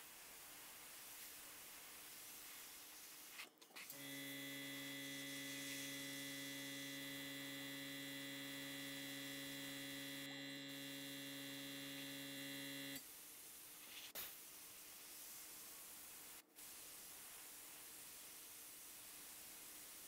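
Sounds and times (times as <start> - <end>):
compressor motor humming: 3.9 - 13.0.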